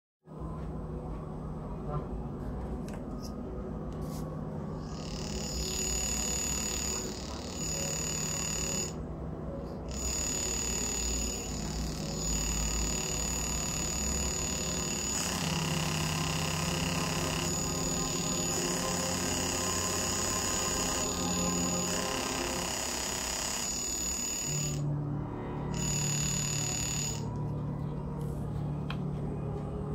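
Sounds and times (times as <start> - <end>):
electronic buzz with low hum: 3.6 - 28.6
steady high tones: 4.6 - 27.6.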